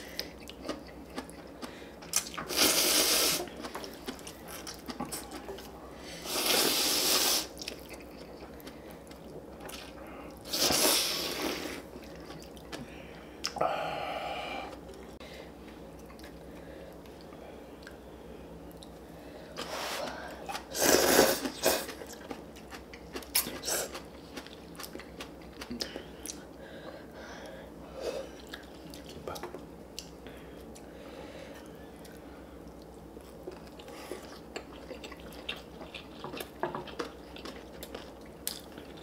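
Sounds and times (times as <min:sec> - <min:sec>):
chewing: 0:00.1 - 0:02.6, 0:03.4 - 0:05.8, 0:07.5 - 0:10.5, 0:11.9 - 0:13.6, 0:21.4 - 0:26.5, 0:31.6 - 0:39.0
slurping noodles: 0:06.2 - 0:07.6, 0:20.7 - 0:21.9.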